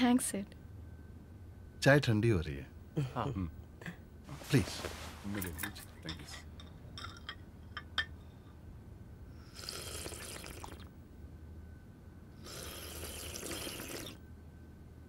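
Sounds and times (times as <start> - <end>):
china cups clinking on saucers: 5.4 - 8.2
tea slurping from a saucer: 9.5 - 10.9, 12.5 - 14.2.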